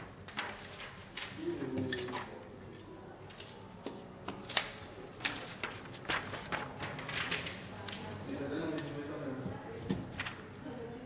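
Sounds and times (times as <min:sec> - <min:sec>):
paper rustling and crackling: 0:00.0 - 0:02.4, 0:04.4 - 0:08.3.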